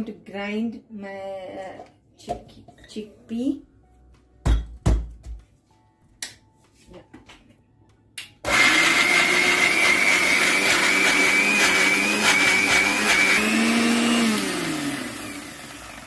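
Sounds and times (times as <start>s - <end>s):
mixer grinder whining: 8.4s - 16.0s.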